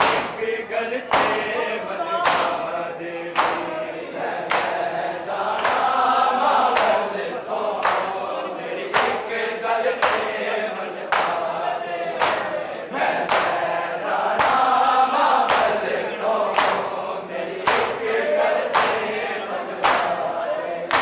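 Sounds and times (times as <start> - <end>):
hands slapping chests: 0.0 - 0.5, 1.1 - 1.6, 2.2 - 2.7, 3.3 - 3.8, 4.4 - 4.9, 5.5 - 6.0, 6.6 - 7.1, 7.7 - 8.3, 8.9 - 9.4, 10.0 - 12.6, 13.2 - 13.7, 14.4 - 17.0, 17.6 - 19.2, 19.8 - 20.3
men chanting in unison: 0.0 - 21.0.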